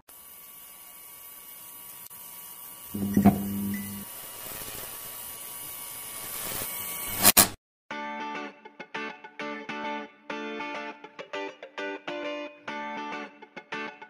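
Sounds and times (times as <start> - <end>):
neon sign electrical hum: 2.8 - 4.1.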